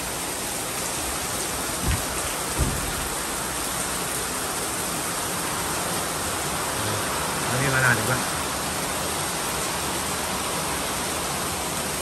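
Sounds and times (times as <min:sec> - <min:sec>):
heavy rain pouring: 0:00.0 - 0:12.0
low thumps: 0:01.8 - 0:03.2.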